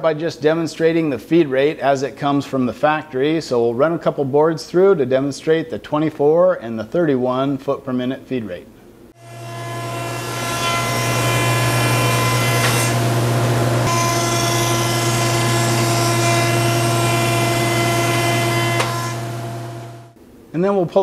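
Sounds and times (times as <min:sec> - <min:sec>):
planer humming and whining: 0:09.2 - 0:20.1.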